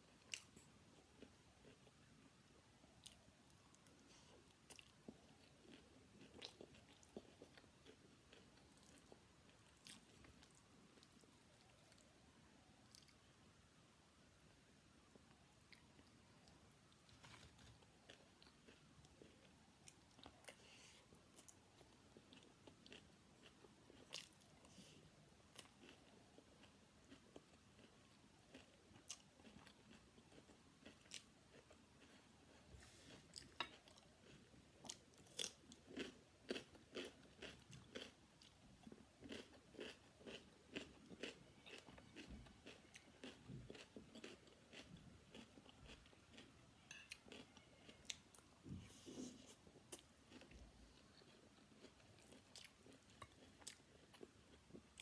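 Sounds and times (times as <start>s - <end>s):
chewing rice: 3.0s - 12.1s, 15.7s - 24.9s, 25.5s - 48.5s, 49.2s - 55.0s
cucumber crunching: 39.2s - 46.4s.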